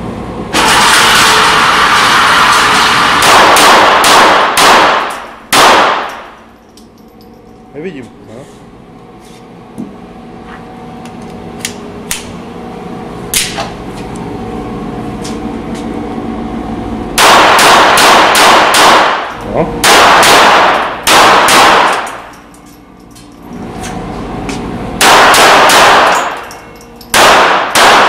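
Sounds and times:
continuous loud blasting: 0.0s - 6.6s, 11.3s - 28.0s
pistol shots echoing indoors: 0.5s - 6.4s, 17.2s - 22.4s, 25.0s - 28.0s.

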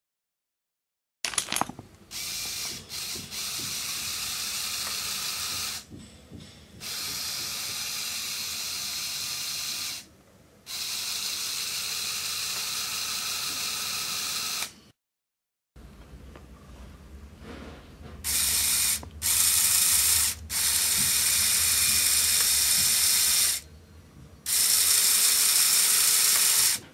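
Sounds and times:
motor and gears whirring: 1.3s - 5.9s, 6.8s - 10.1s, 10.7s - 14.8s, 18.2s - 23.7s, 24.4s - 26.9s.

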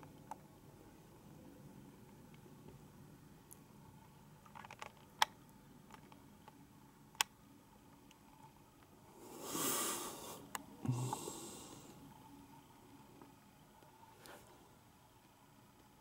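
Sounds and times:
breathy hisses: 9.1s - 12.1s.

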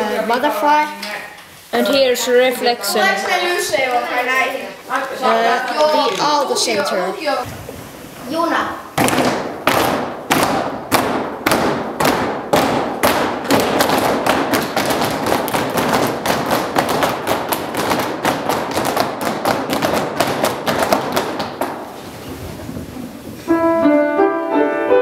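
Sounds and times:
children beating on wooden floor: 9.0s - 23.2s.

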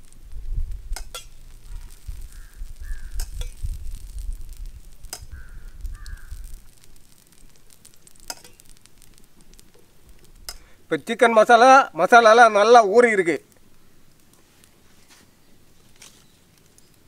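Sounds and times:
low rumble: 0.0s - 7.8s
crow cawing: 1.7s - 3.2s, 5.3s - 6.5s.

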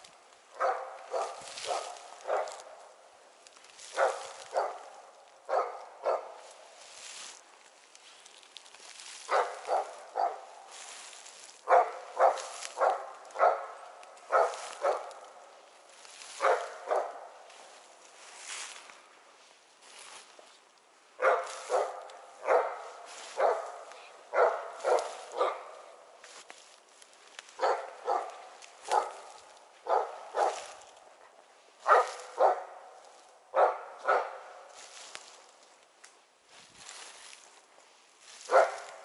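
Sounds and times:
dog barking: 0.5s - 2.7s, 3.9s - 6.4s, 9.3s - 10.6s, 11.6s - 15.3s, 16.4s - 17.3s, 21.2s - 26.0s, 27.6s - 30.9s, 31.8s - 34.8s, 38.5s - 39.0s.

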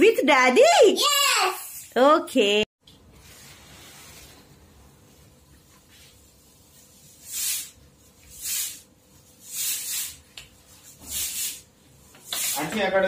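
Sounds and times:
aerosol can spraying: 7.0s - 10.2s, 10.9s - 12.8s.

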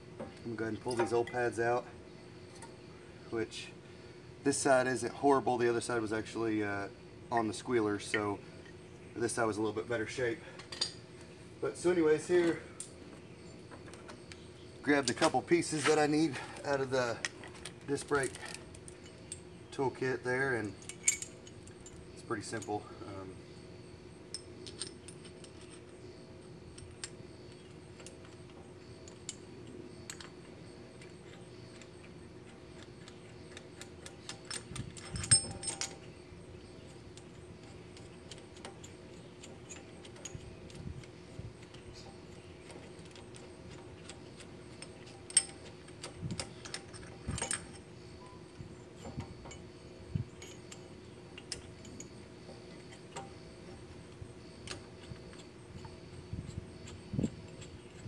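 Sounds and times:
faint steady hum: 0.0s - 58.0s
metal tool parts clinking: 0.7s - 1.5s, 20.6s - 22.8s, 24.3s - 25.9s, 30.0s - 36.1s, 36.8s - 53.8s
metal parts clattering: 33.5s - 36.1s, 41.8s - 53.7s.

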